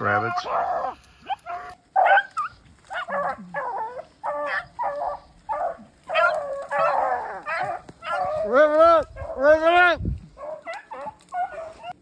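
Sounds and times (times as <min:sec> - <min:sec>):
hounds baying: 0:00.0 - 0:12.0.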